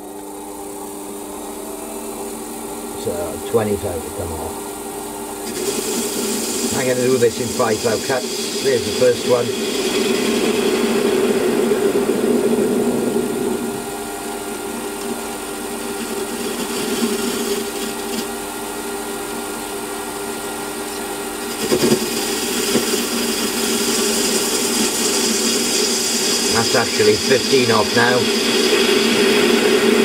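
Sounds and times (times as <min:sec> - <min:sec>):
metal lathe running: 0:00.0 - 0:18.7, 0:19.4 - 0:30.0
high hiss: 0:05.4 - 0:18.3, 0:21.4 - 0:30.0.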